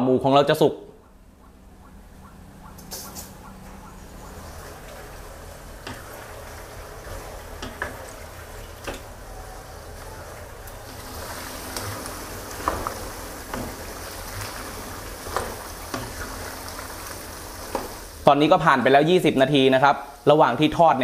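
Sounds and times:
meat sizzling in oil: 10.8 - 18.2.

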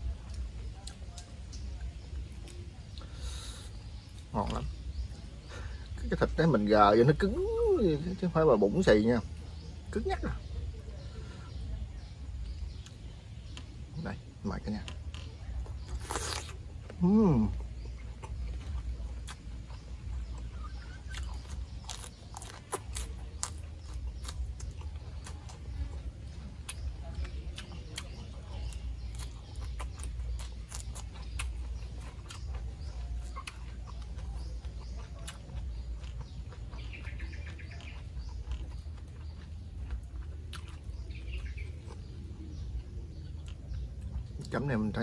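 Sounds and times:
chewing crisp leafy greens: 0.0 - 45.0
bird twittering: 17.1 - 43.8.

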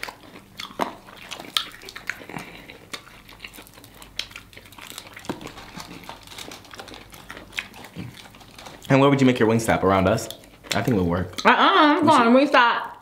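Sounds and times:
small crunches: 0.0 - 9.1
people chewing and smacking: 0.0 - 12.2.

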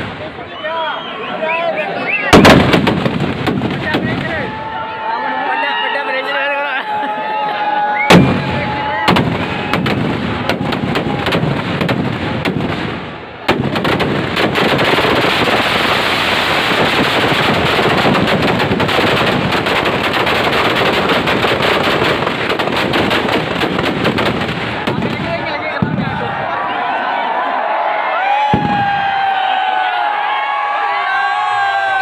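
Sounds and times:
firecrackers crackling: 2.1 - 4.8, 8.0 - 26.4.

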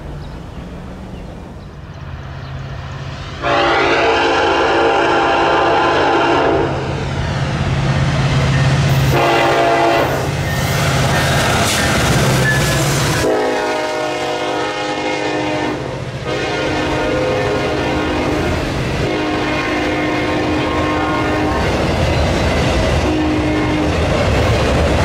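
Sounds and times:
locomotive engine drone: 0.0 - 25.0
train wheels rolling past: 0.0 - 25.0
locomotive air horn blasts: 3.4 - 7.0, 8.9 - 10.4, 12.7 - 21.7, 23.0 - 24.0.

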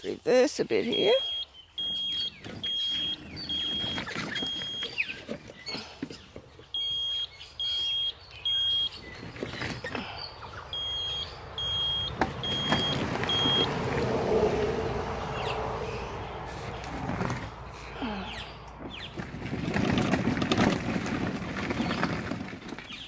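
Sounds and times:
vehicle reversing beeper: 0.9 - 5.1, 6.7 - 9.1, 10.7 - 13.8
vehicle moving rumble: 0.9 - 23.0.

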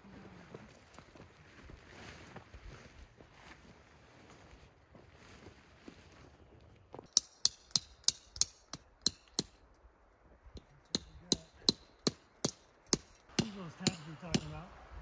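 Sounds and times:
hammer striking tent stake: 7.1 - 9.6, 10.6 - 14.7.

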